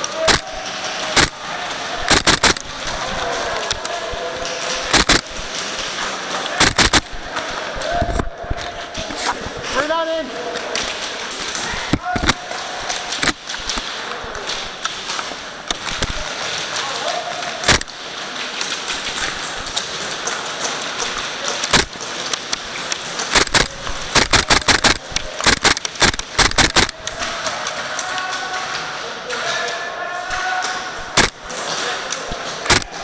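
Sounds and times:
steady background din: 0.0s - 33.0s
airsoft gun shots: 0.2s - 1.4s, 2.0s - 3.0s, 4.8s - 5.4s, 6.6s - 7.2s, 13.2s - 13.7s, 17.6s - 17.9s, 21.6s - 22.0s, 23.3s - 27.1s, 31.1s - 31.5s, 32.6s - 33.0s.

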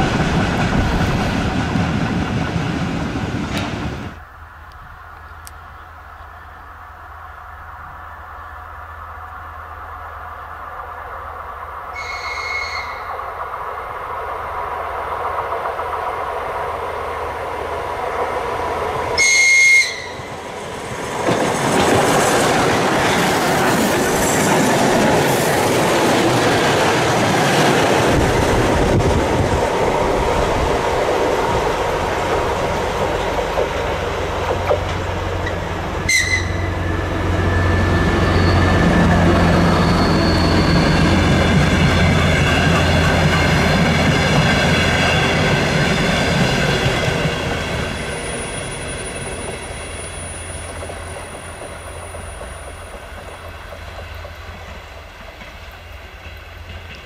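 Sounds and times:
diesel railcar engine droning: 0.0s - 57.0s
train horn: 11.9s - 13.2s, 19.2s - 20.3s, 36.0s - 36.9s
train wheels clattering over rails: 20.3s - 57.0s.

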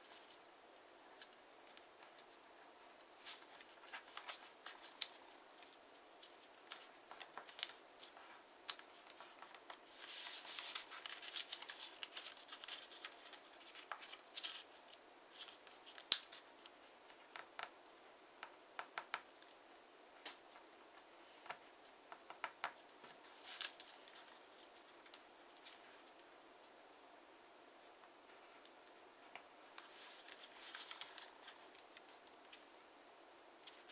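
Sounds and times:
paper rustling: 3.1s - 16.7s, 22.6s - 26.3s, 29.8s - 32.6s.

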